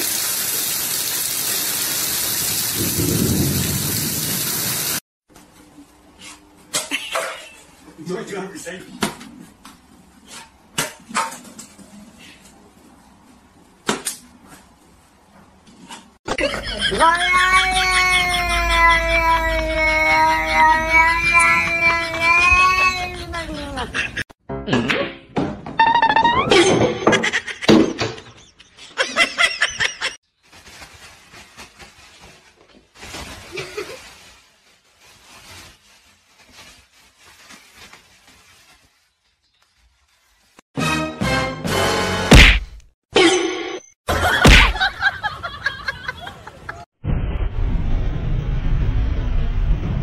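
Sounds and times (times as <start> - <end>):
plastic bag rustling: 30.3 - 40.6.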